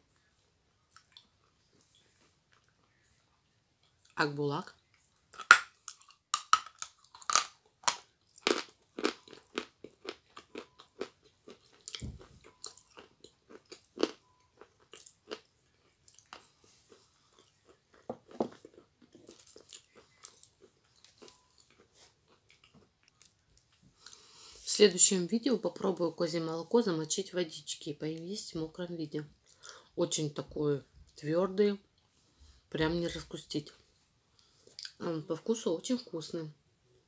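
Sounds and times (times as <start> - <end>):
chewing crunches: 5.3 - 24.2.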